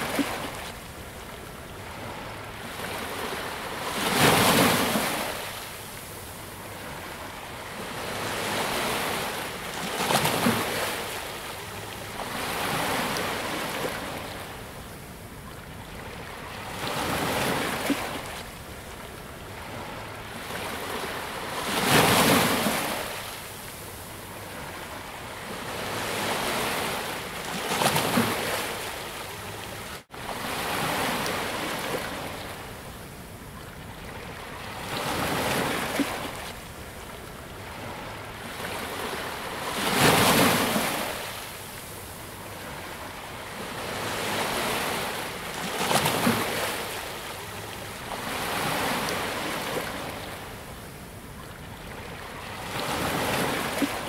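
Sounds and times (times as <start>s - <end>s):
ocean waves breaking: 0.0s - 14.8s, 51.5s - 54.0s.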